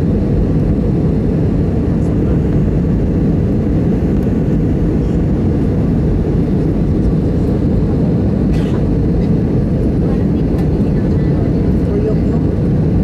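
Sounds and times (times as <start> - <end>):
jet airliner cabin noise: 0.0 - 13.0.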